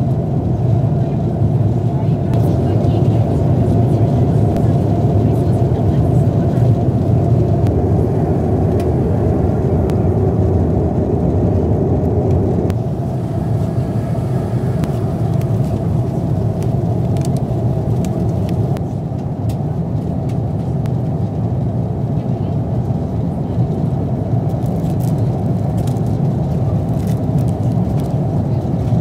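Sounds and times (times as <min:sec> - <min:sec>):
jet engine cabin rumble: 0:00.0 - 0:29.0.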